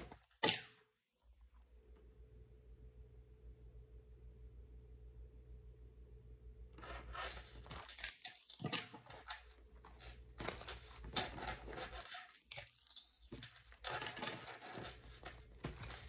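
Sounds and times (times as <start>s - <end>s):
cards being shuffled: 6.8s - 16.0s.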